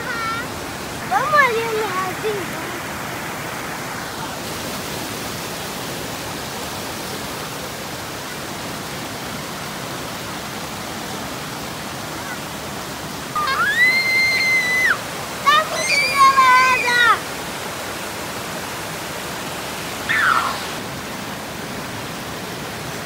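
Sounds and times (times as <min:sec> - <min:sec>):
waterfall rushing over rock: 0:00.0 - 0:23.0
high voice calling out: 0:20.1 - 0:20.8.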